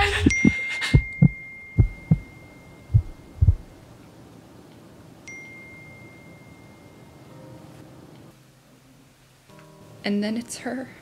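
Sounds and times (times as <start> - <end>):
heartbeat thumps: 0.0 - 2.3, 2.9 - 3.8.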